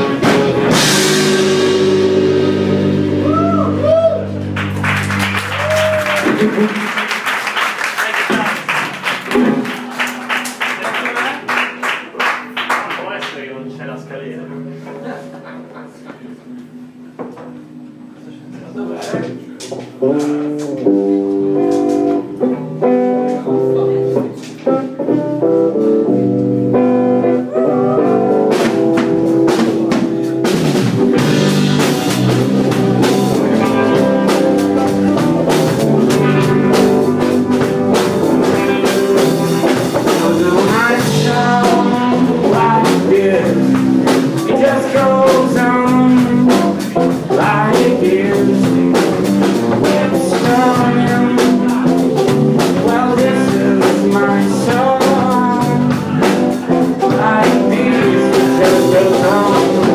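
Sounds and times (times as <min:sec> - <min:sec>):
drum kit beat: 0:00.0 - 0:13.2, 0:19.0 - 0:59.9
rock band playing: 0:00.0 - 0:18.0, 0:19.6 - 0:59.9
guitar: 0:00.0 - 0:59.9
person singing: 0:27.2 - 0:28.4, 0:38.0 - 0:59.9.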